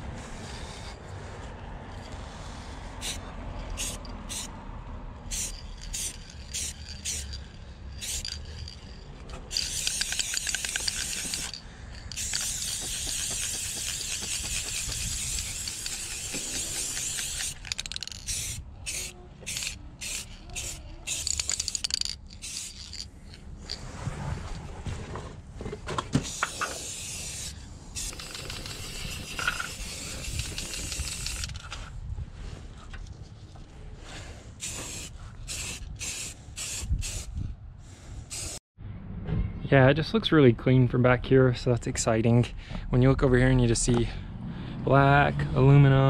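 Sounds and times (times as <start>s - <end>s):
spray paint can hissing: 0.2s - 0.9s, 2.2s - 4.5s, 5.2s - 23.1s, 26.2s - 31.7s, 34.6s - 37.3s, 38.3s - 38.6s.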